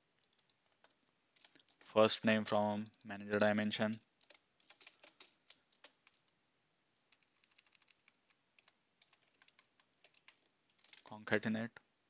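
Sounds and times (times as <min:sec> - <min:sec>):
computer keyboard typing: 0:00.2 - 0:01.7, 0:03.8 - 0:06.3, 0:07.1 - 0:11.1.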